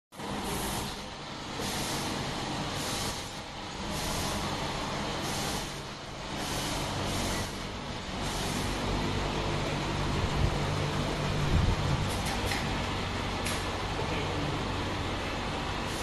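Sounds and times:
machine hiss: 0.2s - 10.0s, 15.7s - 16.0s
machine hum: 0.2s - 16.0s.

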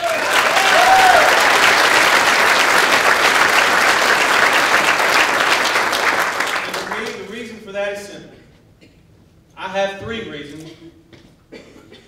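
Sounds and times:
cheering calls: 0.0s - 5.6s
audience applauding: 0.0s - 7.2s.

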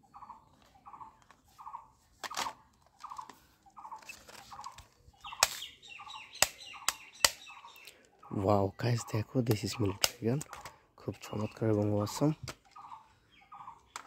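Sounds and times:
plastic toy guns clicking: 2.2s - 3.4s, 4.0s - 5.7s, 6.3s - 8.2s, 9.5s - 10.8s, 11.5s - 12.9s, 13.8s - 14.0s.

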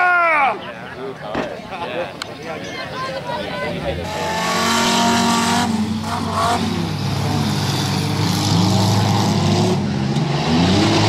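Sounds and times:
race car engines revving: 3.2s - 11.0s.

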